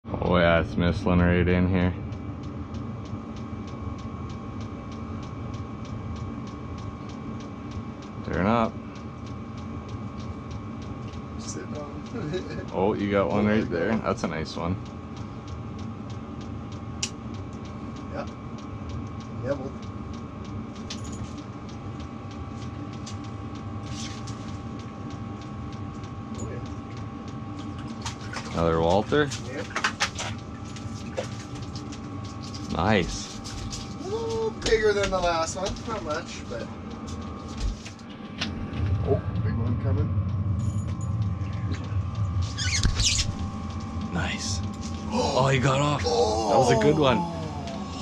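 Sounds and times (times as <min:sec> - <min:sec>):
heater humming: 0:00.0 - 0:48.0
rapid regular ticking: 0:00.4 - 0:28.0, 0:31.4 - 0:37.5.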